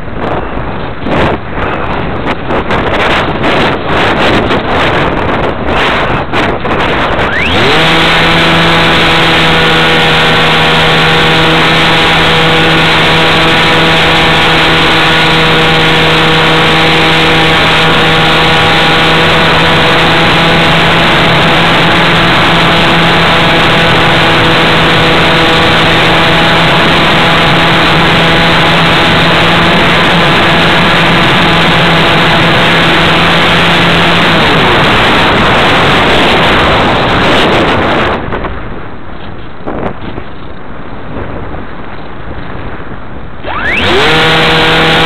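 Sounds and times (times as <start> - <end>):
model aircraft motor whine: 7.0 - 35.6, 43.4 - 45.0.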